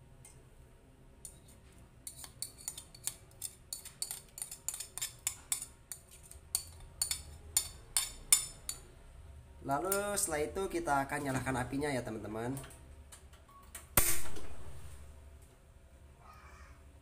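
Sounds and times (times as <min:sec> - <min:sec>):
metal spoon scraping ceramic plate: 0:01.2 - 0:08.8.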